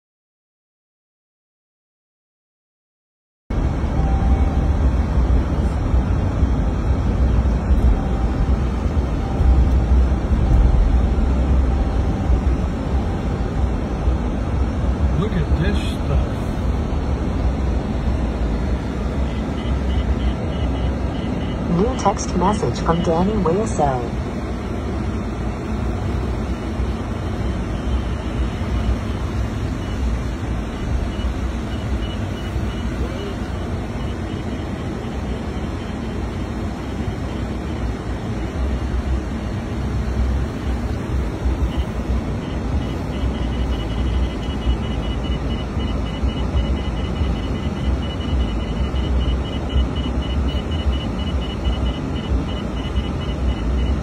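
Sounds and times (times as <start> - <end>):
road and engine noise in truck cab: 3.5 - 54.0
faint high-pitched beeps: 3.9 - 4.9, 7.6 - 14.0, 19.1 - 24.2, 26.0 - 38.6, 41.6 - 54.0.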